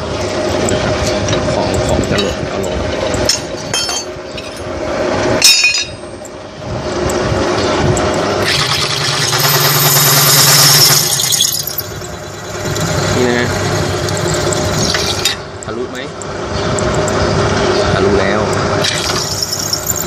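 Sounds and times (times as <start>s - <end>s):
sharp metal clink: 5.4s - 6.2s
electric drill running: 8.4s - 15.2s, 18.8s - 20.0s
drill bit scraping steel: 8.4s - 15.4s, 18.8s - 20.0s.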